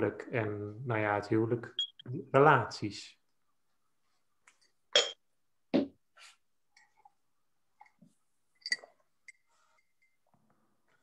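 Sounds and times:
cup clinking with a ring: 5.0 - 5.2, 7.8 - 10.3.

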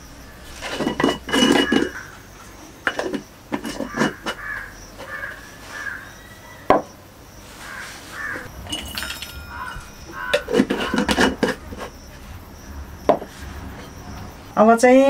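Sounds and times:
glass jars and brass cups clinking: 0.6 - 2.2, 2.8 - 4.4, 8.4 - 12.0.

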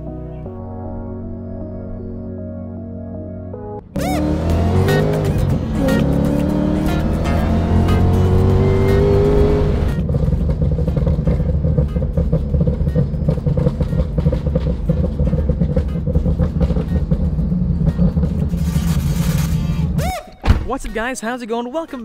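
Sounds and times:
car engine revving from inside cabin: 4.0 - 10.0.

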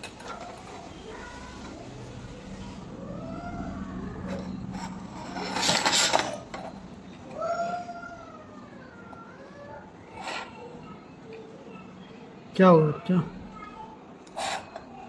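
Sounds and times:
low hum: 0.0 - 9.3
loud scraping rub: 0.4 - 6.8, 14.3 - 15.0.

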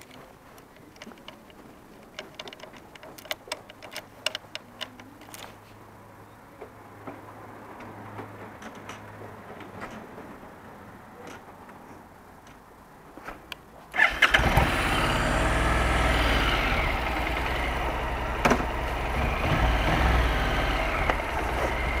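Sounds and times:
sharp clicks and taps: 0.0 - 5.5.

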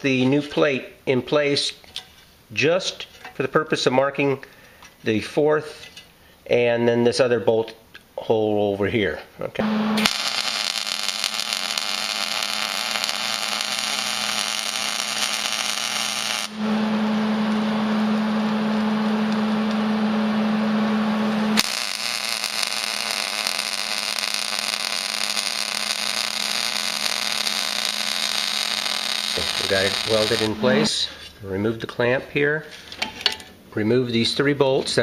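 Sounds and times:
welder hum: 9.6 - 31.0
welding arc crackling: 10.0 - 16.7, 21.6 - 30.9.

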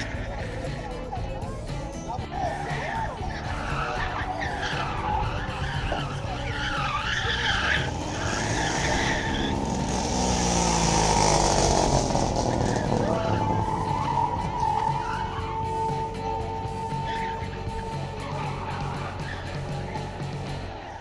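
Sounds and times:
tyres squealing: 1.8 - 21.0
car engine revving hard: 3.5 - 20.0.

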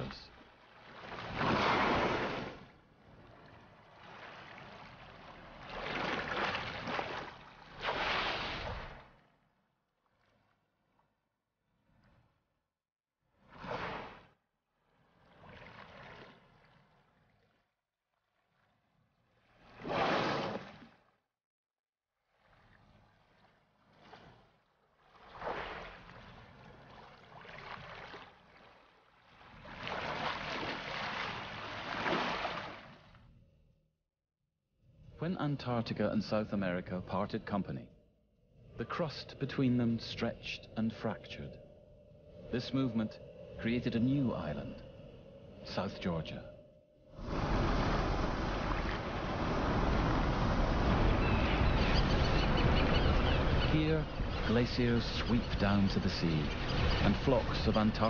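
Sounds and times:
sea water surging and splashing: 0.0 - 9.2, 13.6 - 14.3, 19.6 - 20.9, 25.2 - 33.0, 47.2 - 58.0
wind: 0.0 - 12.5, 13.3 - 21.1, 22.2 - 33.8, 34.8 - 58.0
sea surf: 0.9 - 2.7, 47.2 - 58.0
high chirping bird calls: 51.1 - 54.6.

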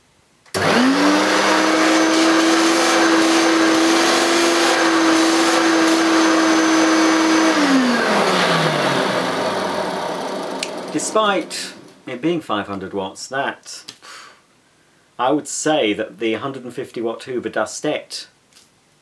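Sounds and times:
vacuum cleaner motor whine: 0.5 - 12.0.

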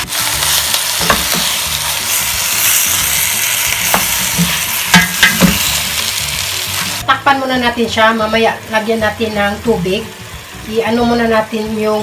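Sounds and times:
meat sizzling in a pot: 0.0 - 12.0.

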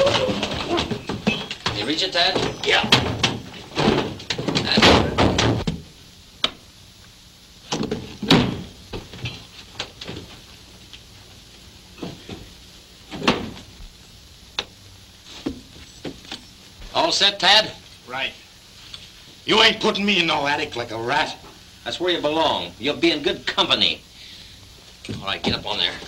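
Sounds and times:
things shuffling about: 0.0 - 5.7
wooden trapdoor knocks and thumps: 0.0 - 5.8.

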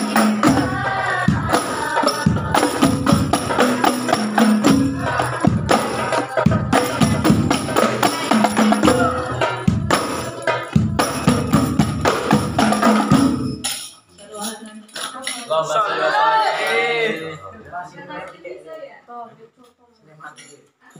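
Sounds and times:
frame drums: 0.0 - 14.1.

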